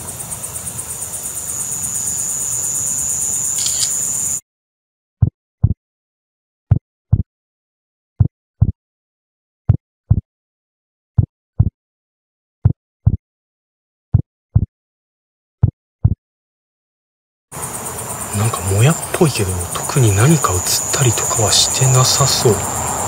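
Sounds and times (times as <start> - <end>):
night insects chirring: 0.0 - 4.4, 17.6 - 23.0
heartbeat thumps: 5.2 - 5.8, 6.7 - 7.3, 8.2 - 8.8, 9.7 - 10.3, 11.2 - 11.8, 12.6 - 13.2, 14.1 - 14.7, 15.6 - 16.2.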